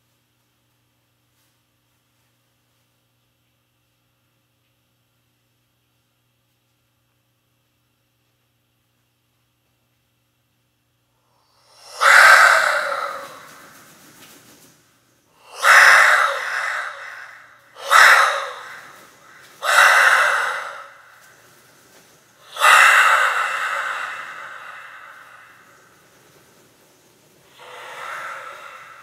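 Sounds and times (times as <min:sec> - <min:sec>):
breathy gasps into a microphone: 0:27.5 - 0:29.0.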